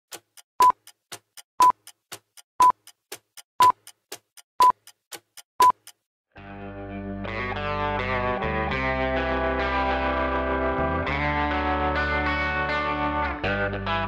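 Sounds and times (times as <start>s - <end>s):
clock ticking: 0.1s - 6.0s
music: 6.4s - 14.0s.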